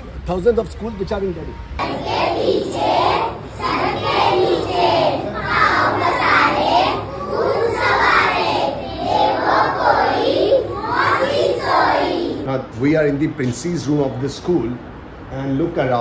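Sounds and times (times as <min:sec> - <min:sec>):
children singing in unison: 0:01.8 - 0:12.4.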